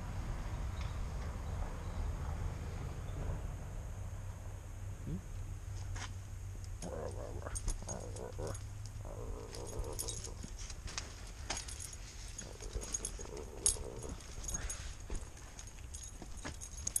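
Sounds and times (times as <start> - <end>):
dog collar tags jingling: 6.8 - 17.0.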